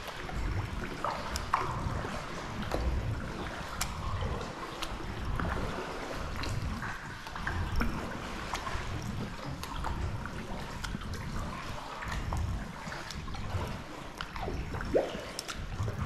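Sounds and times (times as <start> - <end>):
paddle strokes in water: 0.0 - 16.0
water dripping off paddle: 0.0 - 16.0.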